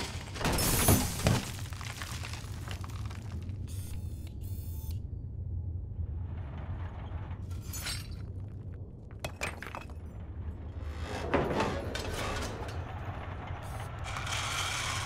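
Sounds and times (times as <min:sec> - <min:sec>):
rocks crunching and clinking: 0:00.0 - 0:03.6, 0:07.5 - 0:10.6
low rumble: 0:04.9 - 0:15.0.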